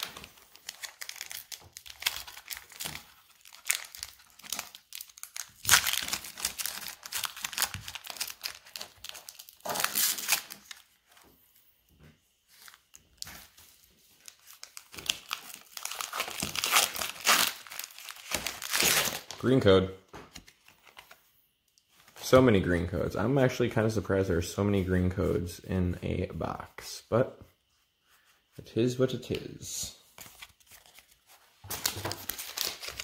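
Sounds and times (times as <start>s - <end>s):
foil wrapper crinkling: 0.0s - 11.2s, 12.5s - 19.5s, 30.6s - 33.0s.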